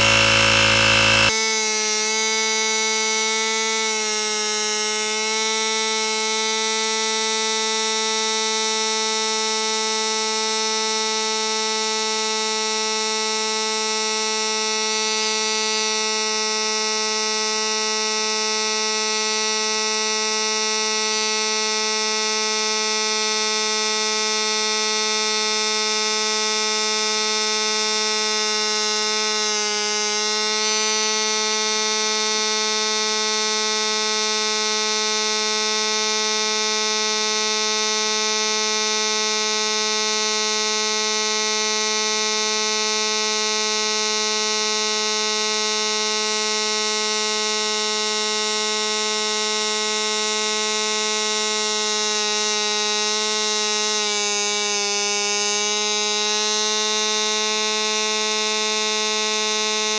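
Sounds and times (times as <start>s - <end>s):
tire inflator compressor buzzing: 0.0s - 47.1s, 50.6s - 59.9s.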